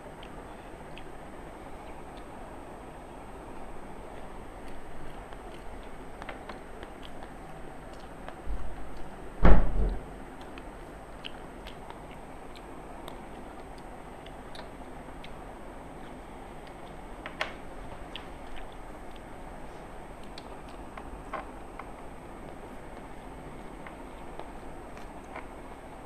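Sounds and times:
chewing and eating clicks: 4.1s - 9.2s, 9.9s - 19.4s, 20.0s - 26.0s
low thump: 9.4s - 10.0s.

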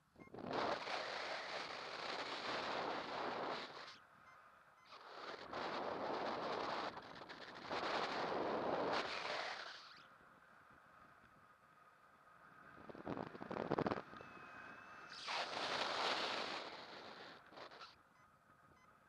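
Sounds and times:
wind rushing over microphone: 5.0s - 9.6s, 12.6s - 14.2s.

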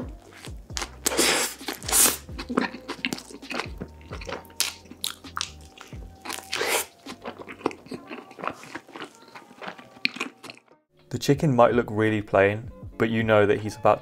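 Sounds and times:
background music: 0.0s - 14.0s
wet smacking chewing: 0.3s - 10.7s
biting into food: 0.4s - 10.7s.

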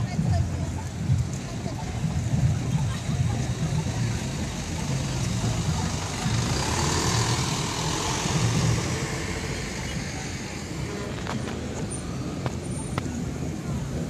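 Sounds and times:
truck engine driving past: 3.8s - 12.9s.

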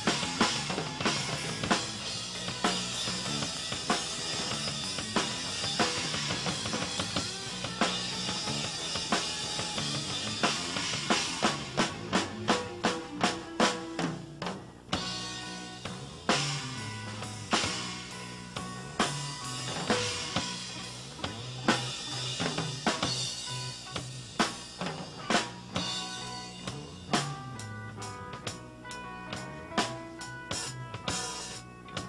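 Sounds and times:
rock band playing: 0.0s - 32.0s.

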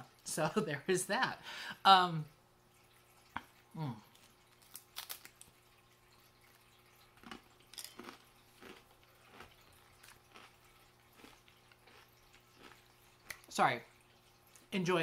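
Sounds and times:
faint crunchy chewing: 3.3s - 13.5s
bite into crispbread: 4.5s - 5.5s.

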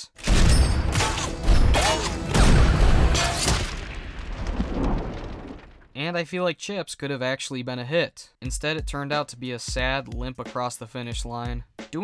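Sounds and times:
music: 1.0s - 3.4s, 8.4s - 12.0s
heavy booms: 1.6s - 6.0s
deep rumble: 3.8s - 5.9s.

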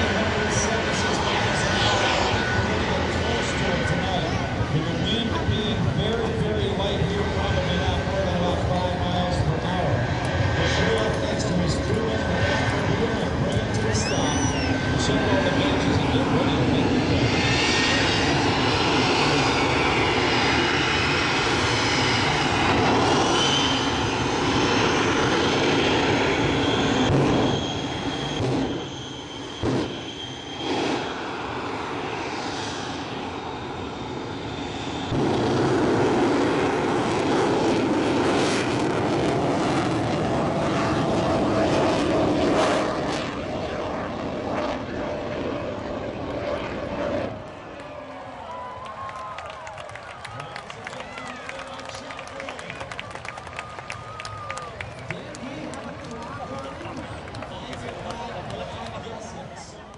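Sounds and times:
jet engines running loudly: 0.0s - 59.9s
whining tones: 13.5s - 15.1s.

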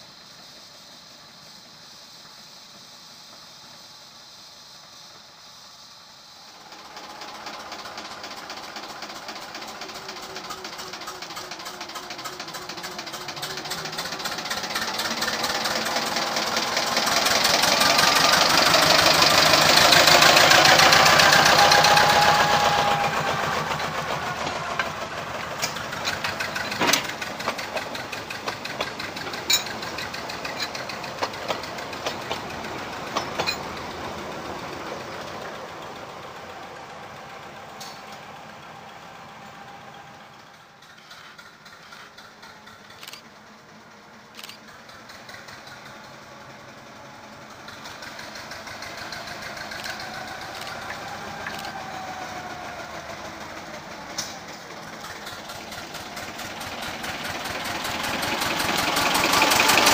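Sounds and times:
diesel locomotive engine chugging: 0.0s - 59.9s
wagon wheels clicking over rail joints: 6.7s - 59.9s.

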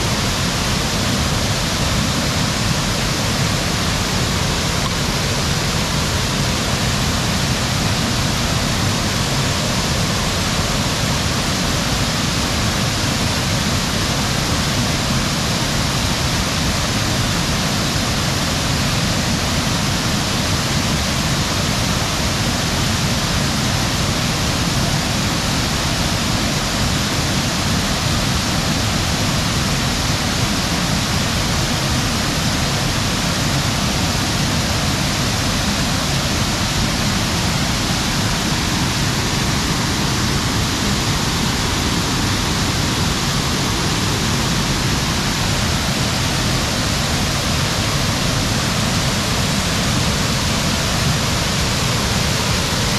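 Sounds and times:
waterfall rushing: 0.0s - 52.9s.

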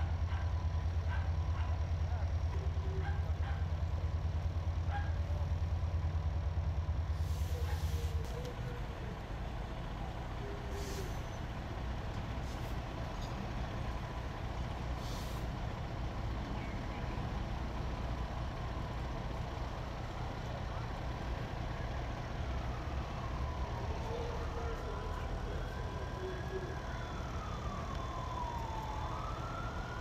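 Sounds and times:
diesel engine rumbling: 0.0s - 30.0s
air brake hisses: 7.2s - 8.2s, 10.7s - 11.4s, 15.0s - 15.5s.

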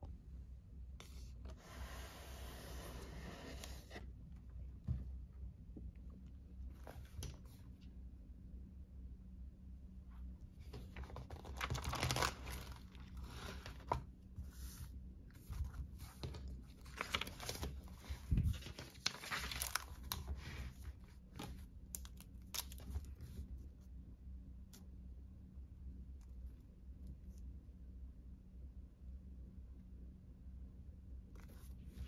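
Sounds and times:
notebook pages rustling: 6.7s - 7.7s, 10.6s - 23.6s.

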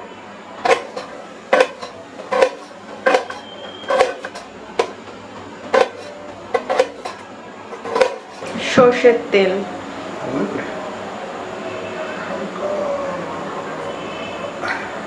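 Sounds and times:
knife knocking on steel plate: 0.6s - 5.0s, 5.7s - 7.2s, 7.8s - 8.5s.

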